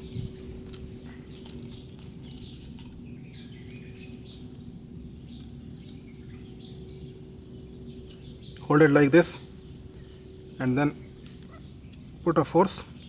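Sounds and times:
small birds chirping: 0.0s - 13.0s
steady low hum: 0.0s - 13.0s.

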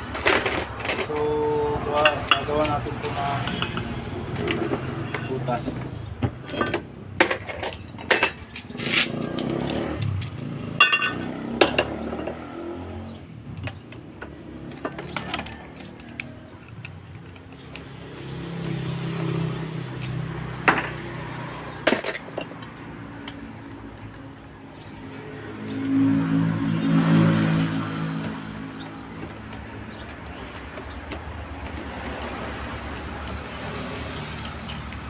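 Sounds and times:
metal clicks and knocks: 0.0s - 12.4s, 13.4s - 18.8s, 28.2s - 33.4s.

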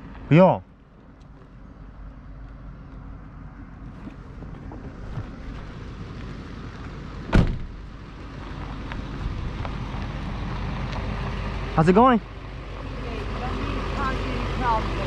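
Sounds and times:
tires on gravel: 0.0s - 15.0s
truck engine rumbling: 0.0s - 15.0s
sharp thump: 7.3s - 7.8s.

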